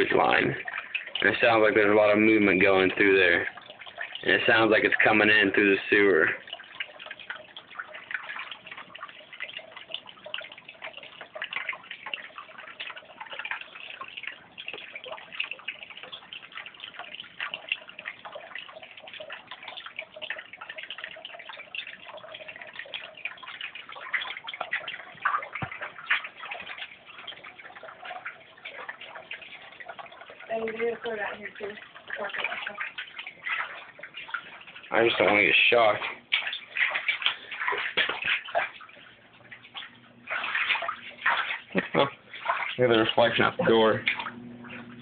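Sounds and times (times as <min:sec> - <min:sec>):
water trickling through drain pipe: 0:00.0 - 0:45.0.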